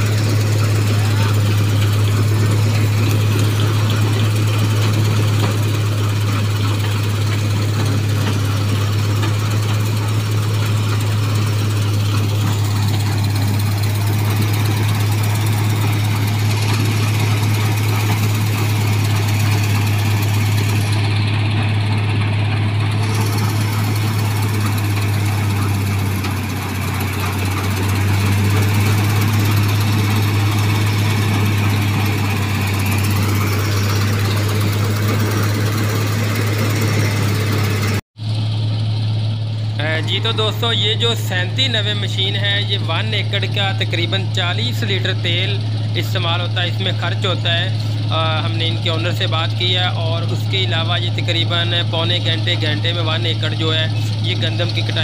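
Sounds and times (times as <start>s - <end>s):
combine harvester engine drone: 0.0s - 55.0s.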